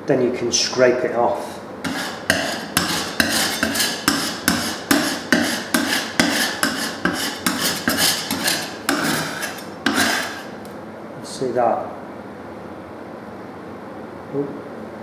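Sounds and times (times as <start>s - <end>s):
metal scraper rasping on plaster wall: 1.8s - 10.6s.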